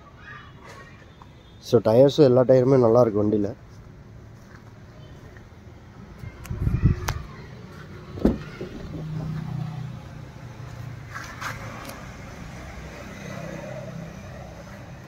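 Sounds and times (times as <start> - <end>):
car door latch clack: 8.2 - 9.3.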